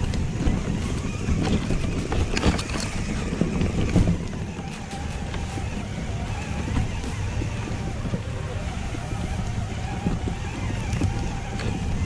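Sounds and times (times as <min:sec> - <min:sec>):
rc truck drivetrain rumble: 0:00.0 - 0:12.0
knocks from rough ground: 0:00.1 - 0:08.2.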